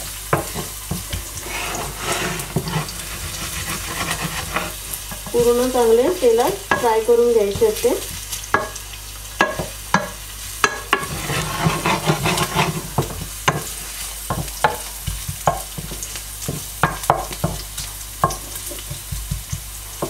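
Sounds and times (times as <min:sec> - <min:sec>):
garlic sizzling in hot oil: 0:00.0 - 0:20.0
wooden spatula scraping a pan: 0:00.3 - 0:07.8, 0:10.6 - 0:17.6.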